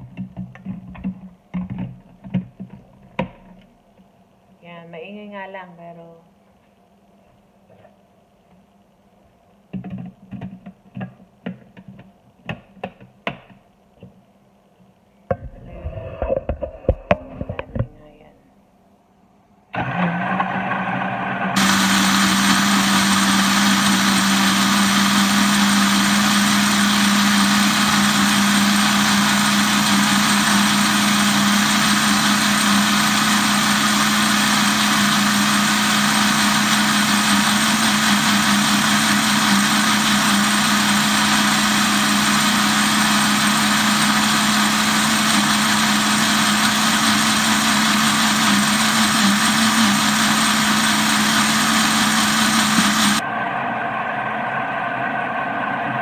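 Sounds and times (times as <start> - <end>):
electric blender running: 16.0 - 17.8, 19.8 - 56.0.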